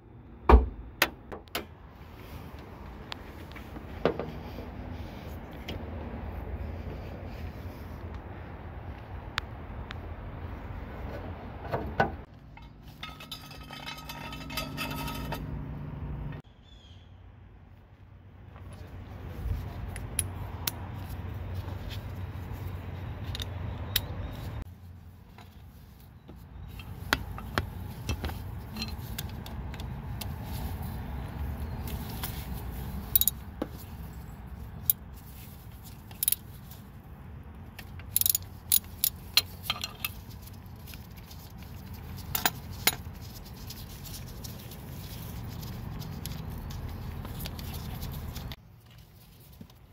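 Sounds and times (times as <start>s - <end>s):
socket and ratchet clicking: 37.8s - 39.2s.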